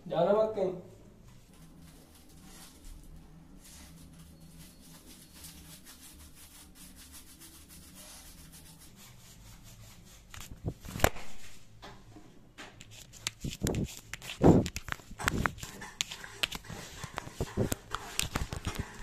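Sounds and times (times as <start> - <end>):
low room hum: 0.0 - 19.0
hands rubbing against microphone: 1.4 - 11.0, 12.8 - 19.0.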